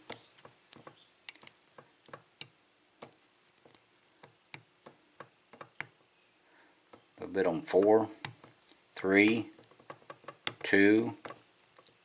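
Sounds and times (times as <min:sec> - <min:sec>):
lock pick ticking on pins: 0:04.2 - 0:06.0, 0:07.8 - 0:12.0.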